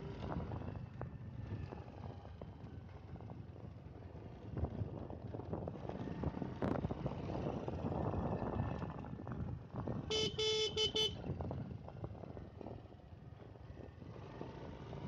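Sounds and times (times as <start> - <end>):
motorcycle engine running: 0.0 - 15.0
wind rushing over microphone: 4.4 - 10.1
vehicle horn toots: 10.1 - 11.2.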